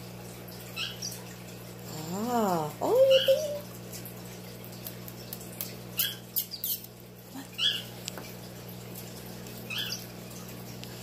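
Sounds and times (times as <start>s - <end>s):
parrot squawking: 2.9s - 3.6s, 7.5s - 7.9s.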